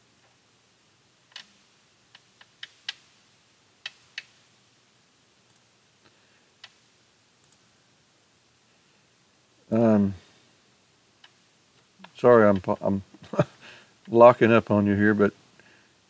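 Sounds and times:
mouse and keyboard clicks: 1.3s - 3.1s, 3.8s - 4.4s, 6.6s - 7.6s, 11.2s - 11.4s.

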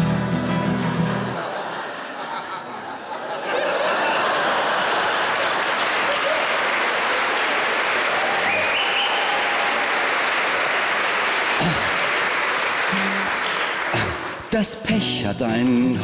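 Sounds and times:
audience applauding: 3.6s - 14.6s
faint instrument or voice notes: 12.9s - 14.2s.

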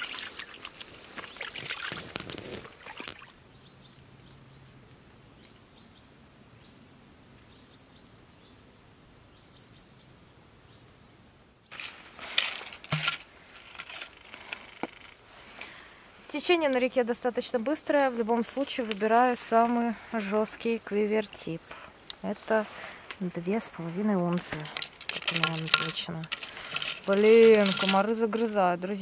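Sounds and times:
small bird chirping: 2.9s - 4.7s, 5.4s - 8.6s, 9.3s - 10.9s
gear rustling and clicking: 11.7s - 15.7s, 24.3s - 28.6s.

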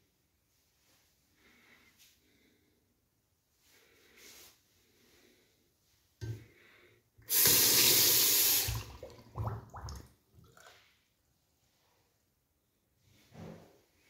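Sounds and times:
tap water running into basin: 7.2s - 10.7s.

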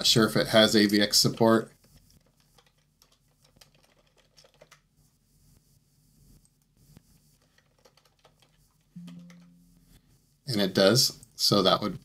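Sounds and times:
keyboard typing: 2.1s - 4.9s, 7.4s - 9.8s.

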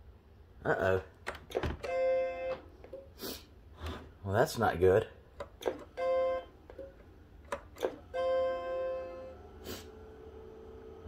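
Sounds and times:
clicks: 6.6s - 8.0s.

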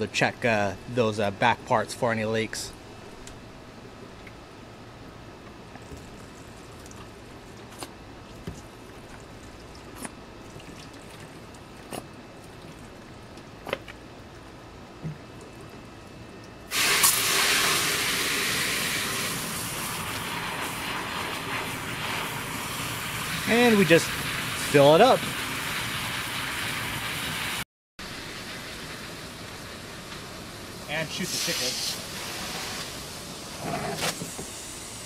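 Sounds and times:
hose water spraying into bucket: 16.7s - 29.9s, 30.8s - 34.6s.

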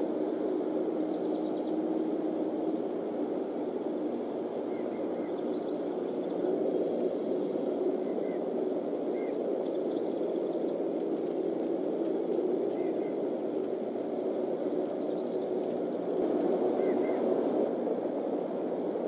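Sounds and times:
low rushing background noise: 0.0s - 19.0s.

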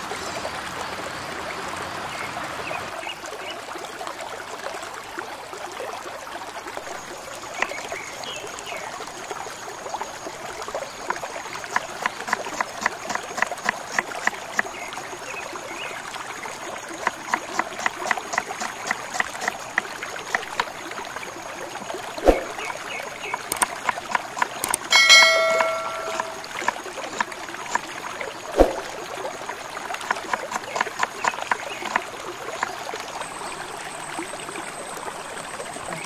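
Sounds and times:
brief metallic ring: 24.9s - 26.4s.

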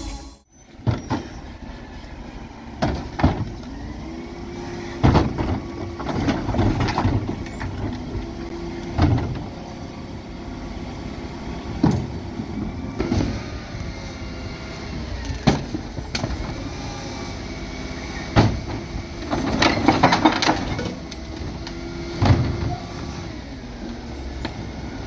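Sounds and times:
plastic bins clanking: 2.8s - 3.7s, 5.0s - 9.5s, 18.3s - 22.8s.

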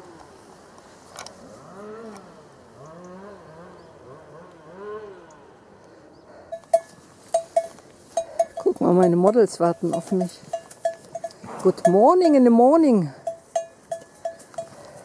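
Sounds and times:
cowbells clanking: 6.5s - 15.0s.

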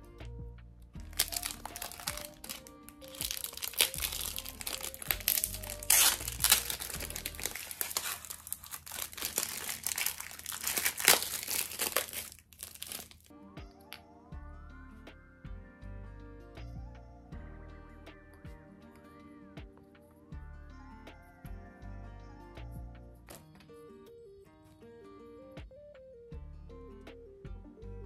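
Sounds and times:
light background music: 0.0s - 28.0s
plastic wrappers crinkling: 1.0s - 13.3s.

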